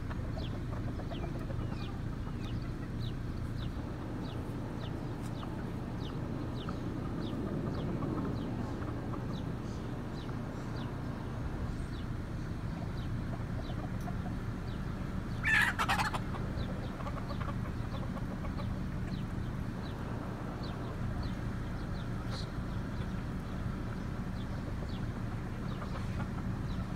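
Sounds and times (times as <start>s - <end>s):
low background rumble: 0.0s - 26.9s
chicken call: 15.4s - 16.4s.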